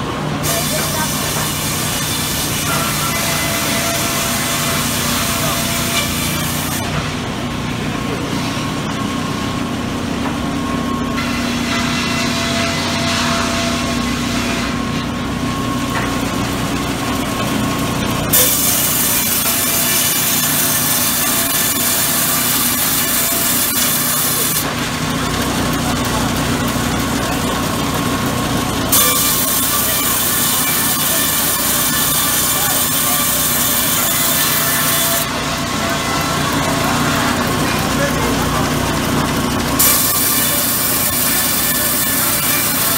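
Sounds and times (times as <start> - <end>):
sawmill machinery humming: 0.0 - 42.9
saw cutting log rasp: 28.9 - 35.3, 39.8 - 42.9.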